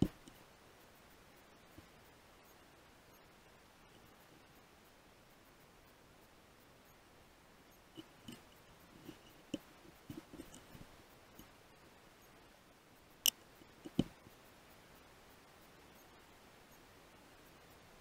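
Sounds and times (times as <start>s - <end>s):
soft knocks and rubs of rifle handling: 8.0s - 11.5s, 13.7s - 14.2s.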